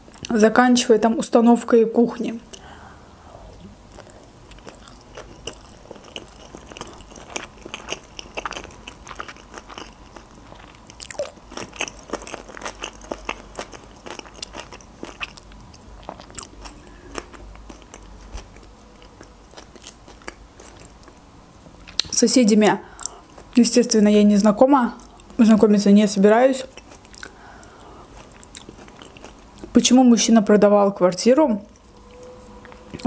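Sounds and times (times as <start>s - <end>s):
person chewing food: 3.6s - 22.1s, 22.9s - 23.6s, 26.6s - 29.8s.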